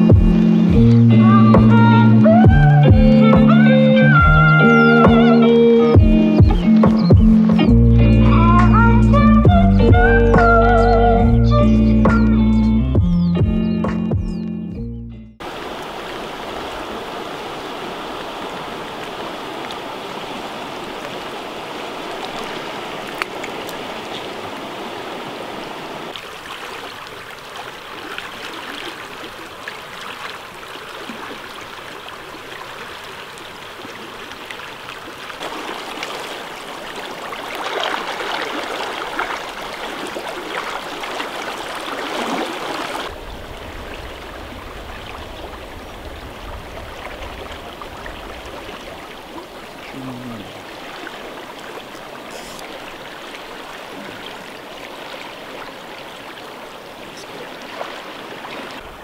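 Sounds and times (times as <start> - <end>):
river water rushing over rocks: 15.4 - 59.0.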